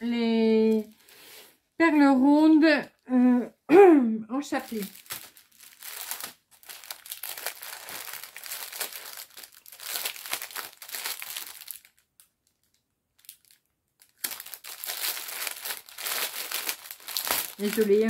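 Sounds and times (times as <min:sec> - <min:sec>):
plastic packets crinkling: 0:00.6 - 0:01.3, 0:04.5 - 0:18.0.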